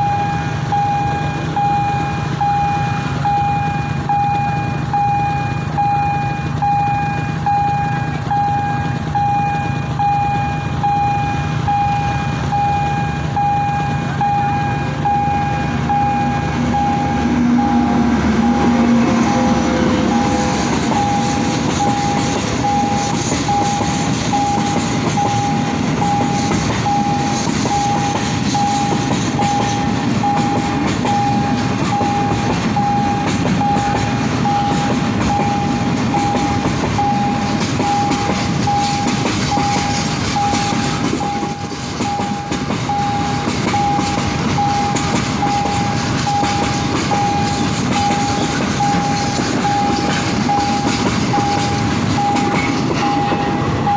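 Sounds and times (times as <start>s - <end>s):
freight train rumbling past: 0.0s - 53.9s
level crossing bell ringing: 24.4s - 53.9s.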